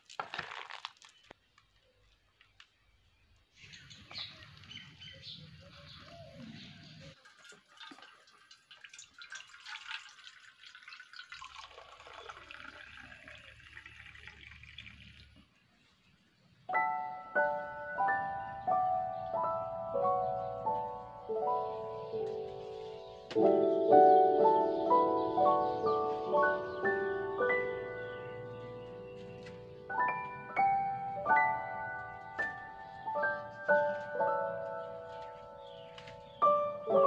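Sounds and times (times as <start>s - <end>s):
liquid trickling and dripping: 7.2s - 15.6s
glockenspiel-like music: 16.7s - 22.4s, 29.9s - 35.6s.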